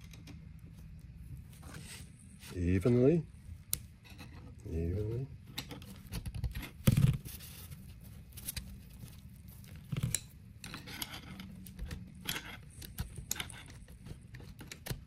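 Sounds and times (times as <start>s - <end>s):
metal pry bars clicking and scraping: 9.9s - 15.0s.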